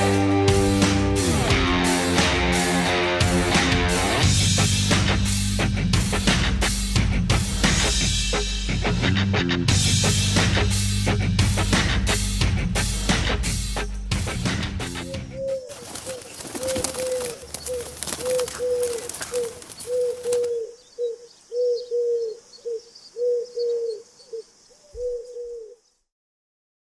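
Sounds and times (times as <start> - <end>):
guitar and drums music: 0.0 - 15.4
dove cooing: 15.0 - 25.9.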